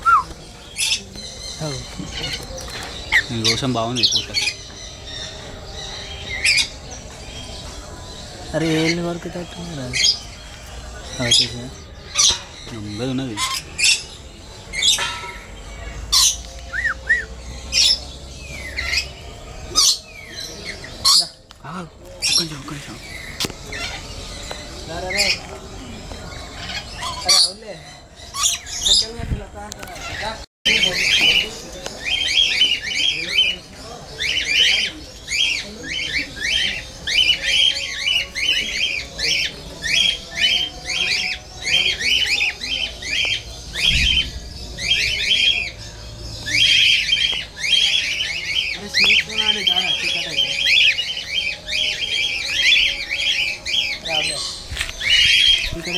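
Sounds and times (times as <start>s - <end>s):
whistled bird notes: 0.0s - 9.1s, 9.9s - 21.4s
lorikeets screeching: 0.0s - 55.9s
cockatiels calling: 8.6s - 21.4s, 22.2s - 29.2s, 29.9s - 55.9s.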